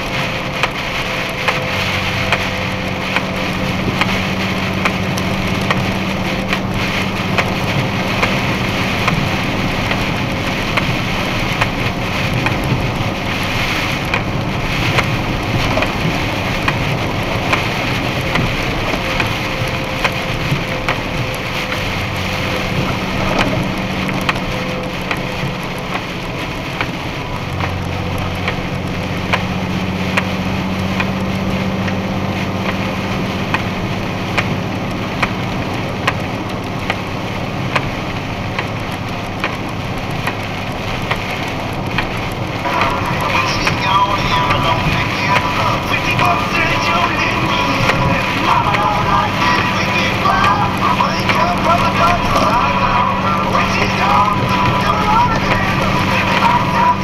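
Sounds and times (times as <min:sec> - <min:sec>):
engine and road drone: 0:00.0 - 0:57.0
heavy rain on truck cab: 0:00.0 - 0:57.0.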